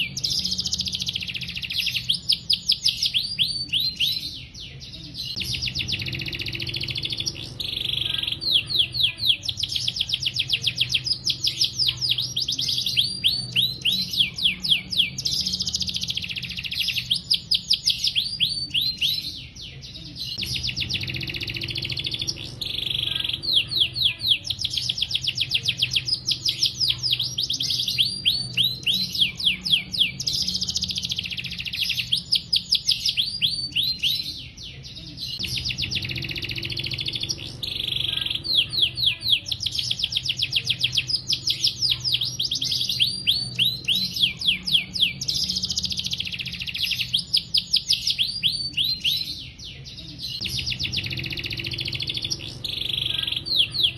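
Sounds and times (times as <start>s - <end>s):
canary singing trills: 0.0s - 53.9s.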